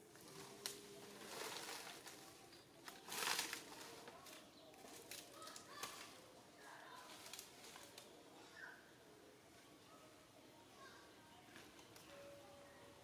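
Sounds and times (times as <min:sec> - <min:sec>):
rustling dry leaves and twigs: 0:00.0 - 0:08.2.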